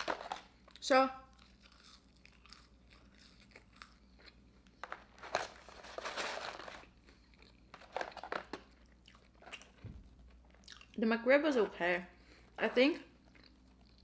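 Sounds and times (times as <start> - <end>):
paperboard carton crinkling: 4.9 - 6.9.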